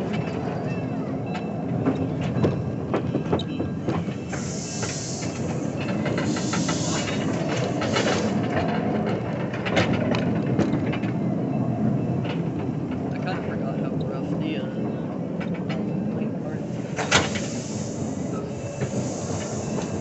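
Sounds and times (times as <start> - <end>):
train rolling rumble: 0.0 - 20.0
wheels clicking over rail joints: 0.0 - 20.0
hissing bursts: 4.2 - 8.5, 16.6 - 20.0.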